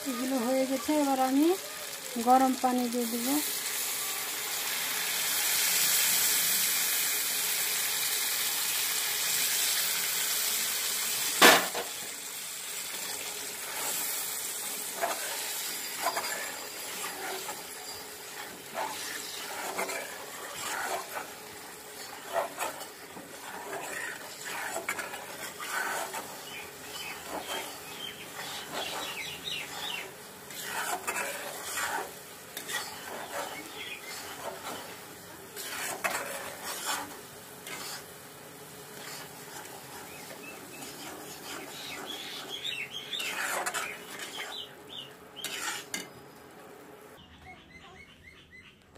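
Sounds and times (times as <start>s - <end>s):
paste sizzling in a pan: 0.0s - 46.2s
metal spatula scraping pan: 13.6s - 38.2s, 38.8s - 44.7s, 45.4s - 46.2s.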